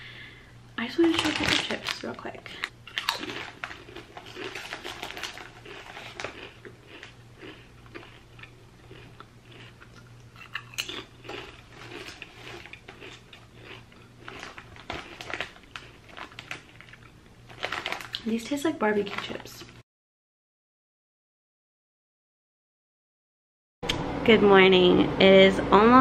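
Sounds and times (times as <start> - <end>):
person crunching potato chips: 0.9 - 18.4.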